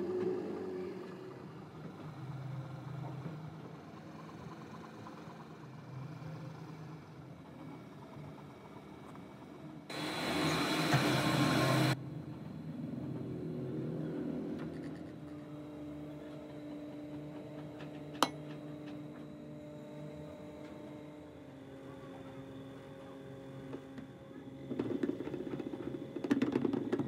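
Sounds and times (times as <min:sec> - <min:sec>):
lathe humming: 0:09.5 - 0:12.0.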